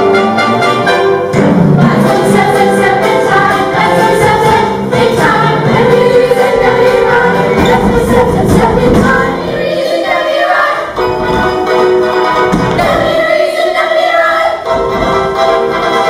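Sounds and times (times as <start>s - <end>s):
loud instrumental accompaniment: 0.0s - 9.9s.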